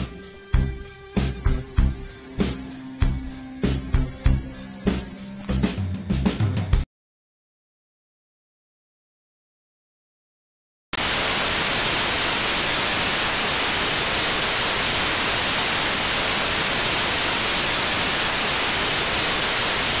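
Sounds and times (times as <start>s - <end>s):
loud static hiss: 0.0s - 5.6s, 11.0s - 20.0s.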